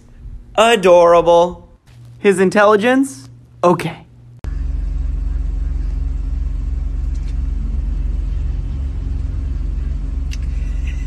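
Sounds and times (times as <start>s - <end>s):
vehicle engine rumble: 4.4s - 11.0s.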